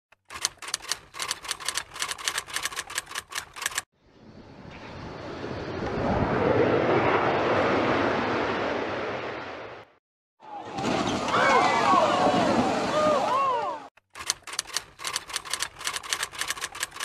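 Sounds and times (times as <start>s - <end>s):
jet aircraft engine passing: 4.0s - 9.9s.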